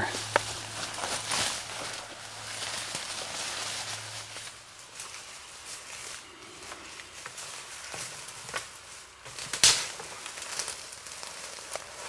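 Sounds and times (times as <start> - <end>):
footsteps through dry leaves: 0.0 - 12.0
twigs cracking: 0.0 - 12.0
loud twig snap: 9.5 - 10.0.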